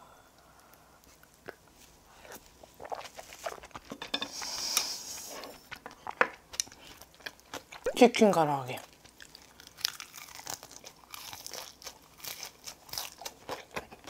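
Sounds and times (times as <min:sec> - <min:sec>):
crunchy biting and chewing: 0:01.1 - 0:03.9, 0:08.9 - 0:14.0.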